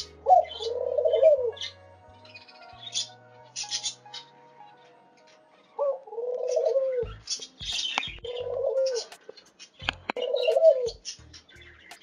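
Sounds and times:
faint high bird chirps: 0.0s - 12.0s
dove cooing: 0.2s - 1.6s, 5.8s - 7.1s, 8.2s - 9.1s, 10.2s - 11.0s.

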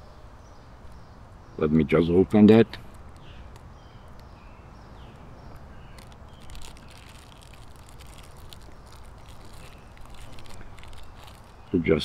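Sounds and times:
plastic bag crinkling: 5.1s - 11.8s.

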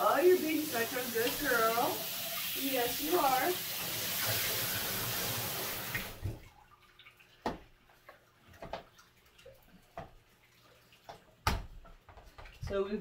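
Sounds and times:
shower head spraying water: 0.0s - 6.2s
water dripping: 0.0s - 13.0s.

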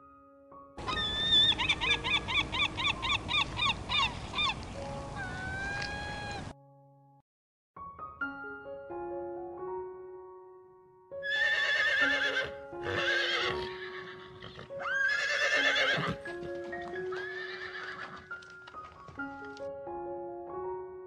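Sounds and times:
background music: 0.0s - 7.2s, 7.8s - 21.0s
horse neighing: 0.8s - 4.6s, 5.2s - 6.5s, 11.2s - 16.2s, 16.9s - 18.3s.

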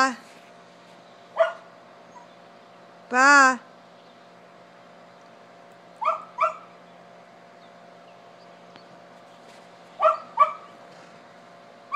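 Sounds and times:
dog yipping: 1.4s - 2.3s, 6.0s - 6.7s, 10.0s - 10.7s.

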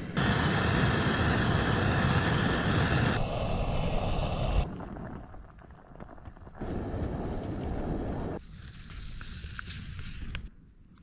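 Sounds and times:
gas stove flame hissing: 0.0s - 5.0s, 6.6s - 8.4s.

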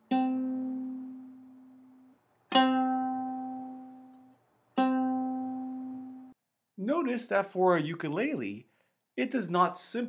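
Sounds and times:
ukulele note plucked: 0.0s - 6.3s.

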